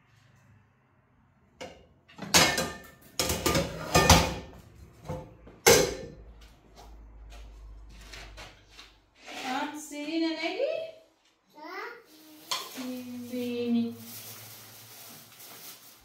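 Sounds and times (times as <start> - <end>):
objects knocking and clattering: 1.6 - 6.4.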